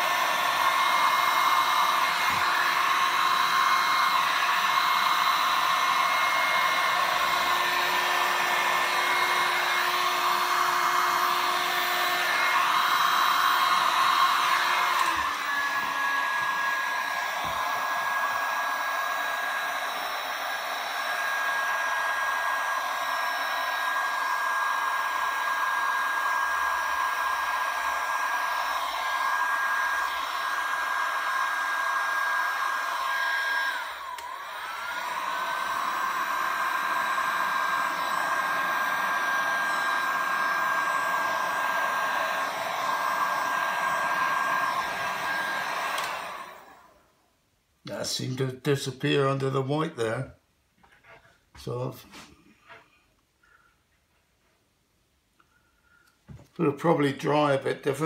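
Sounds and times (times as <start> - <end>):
heat gun blowing air: 0.0 - 47.2, 51.0 - 52.8.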